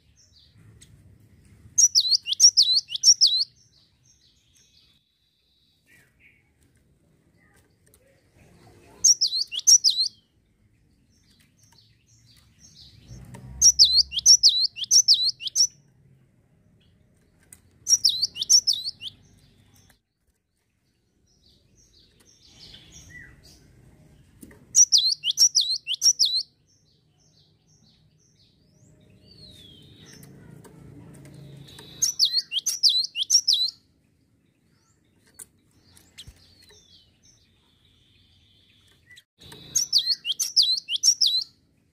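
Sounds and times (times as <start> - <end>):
bird singing high falling notes: 13.6 - 15.7.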